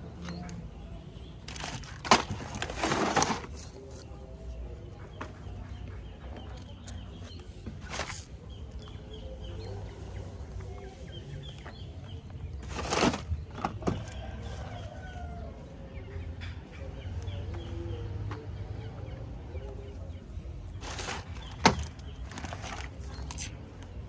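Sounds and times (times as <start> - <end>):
plastic packaging rustling: 1.4 - 3.8, 12.6 - 13.9, 20.8 - 23.5.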